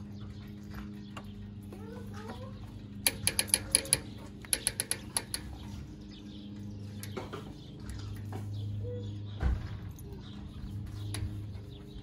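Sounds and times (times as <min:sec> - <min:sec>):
small metallic clicks: 0:03.0 - 0:05.8, 0:06.9 - 0:08.3.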